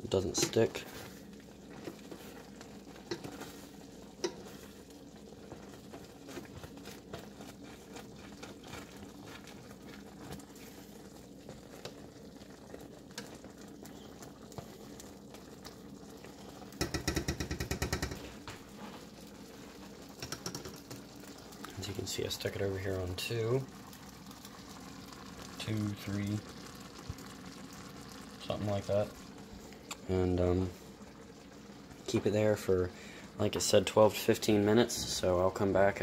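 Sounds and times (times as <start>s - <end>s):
sauce bubbling in a skillet: 0.0s - 36.0s
spatula scraping pan: 0.4s - 4.8s.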